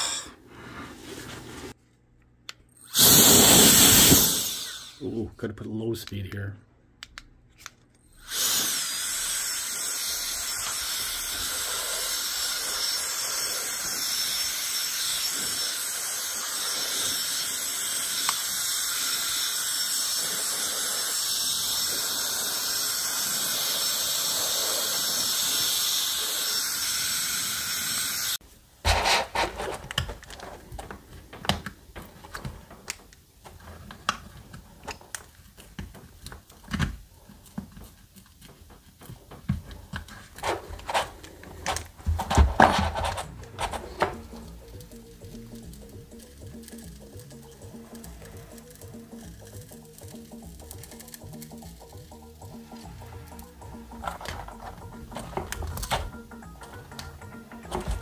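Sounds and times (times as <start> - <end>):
air duster fan whine: 2.8 - 5.3, 8.1 - 31.7.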